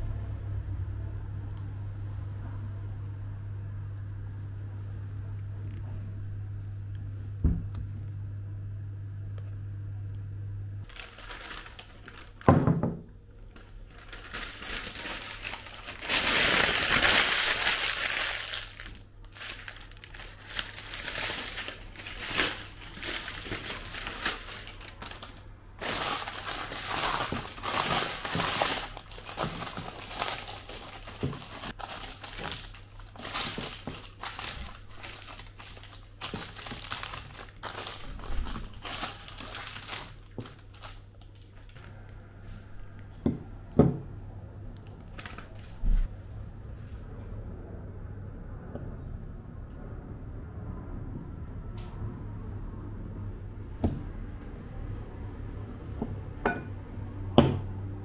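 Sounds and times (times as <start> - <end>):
baking paper crinkling: 10.8 - 41.8, 45.0 - 46.1.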